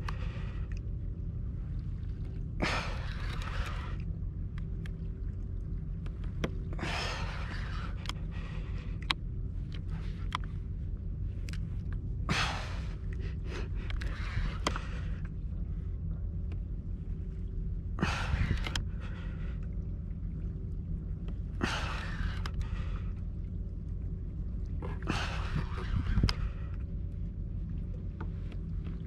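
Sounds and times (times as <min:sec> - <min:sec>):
steady low rumble: 0:00.0 - 0:29.0
small clicks: 0:08.9 - 0:10.6, 0:18.4 - 0:18.9.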